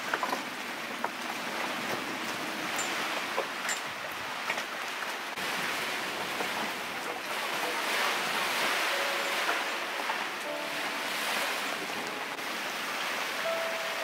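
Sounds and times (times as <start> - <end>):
rain and wind hiss: 0.0 - 14.0.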